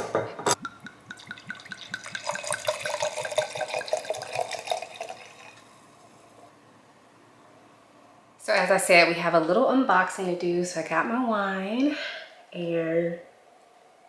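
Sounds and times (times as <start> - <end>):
wine glugging from bottle: 0.5 - 5.6
liquid splashing into glass: 0.6 - 5.6.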